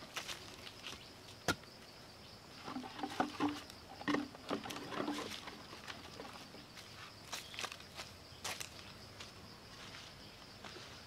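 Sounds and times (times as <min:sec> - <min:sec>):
bamboo tubes knocking: 0:02.6 - 0:06.2.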